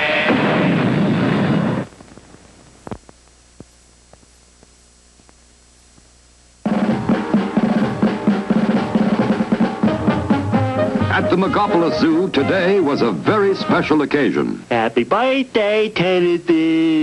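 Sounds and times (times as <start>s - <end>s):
quiet hiss: 0.7s - 17.0s
loud drum-led music: 6.6s - 13.9s
cartoon theme music: 6.8s - 14.2s.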